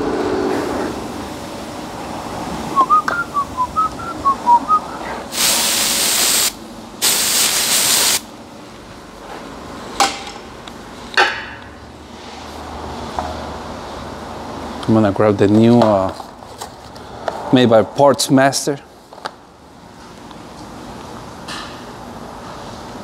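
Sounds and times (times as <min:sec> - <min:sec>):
person whistling a tune: 0:02.8 - 0:05.1
aerosol can spraying: 0:05.3 - 0:08.2.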